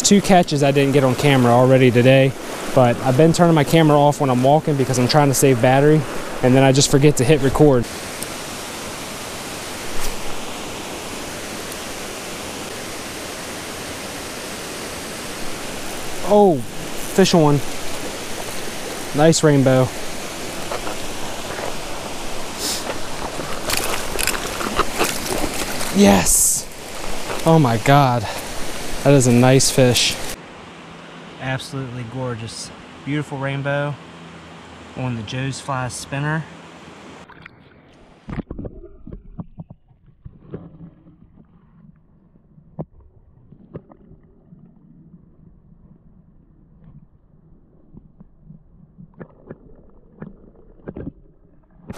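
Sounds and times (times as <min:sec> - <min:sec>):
river water rushing: 0:00.1 - 0:31.4.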